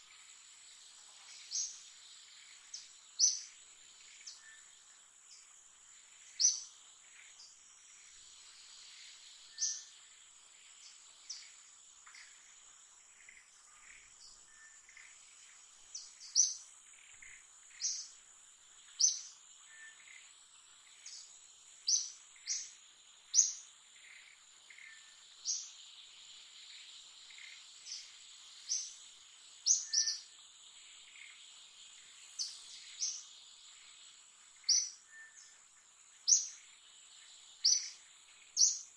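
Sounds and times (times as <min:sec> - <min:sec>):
insect drone: 0:00.0 - 0:38.9
birds chirping: 0:26.7 - 0:30.4, 0:31.0 - 0:38.9.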